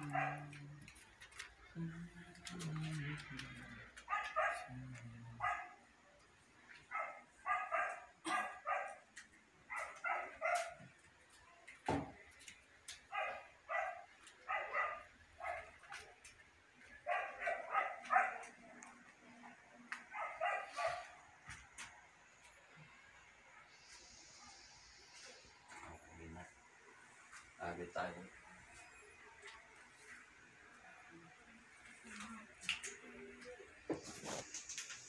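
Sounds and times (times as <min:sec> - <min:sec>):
dog barking: 0:00.0 - 0:00.7, 0:04.1 - 0:05.9, 0:06.9 - 0:09.1, 0:09.7 - 0:10.9, 0:13.1 - 0:16.1, 0:17.0 - 0:18.6, 0:20.1 - 0:21.2.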